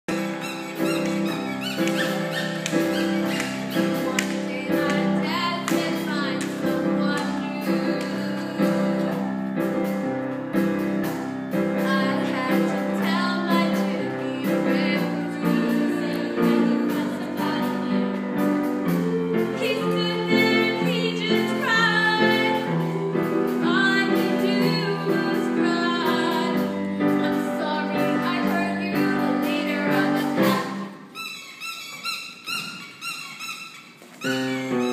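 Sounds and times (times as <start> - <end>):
song with beat and singing: 11.8 - 31.1.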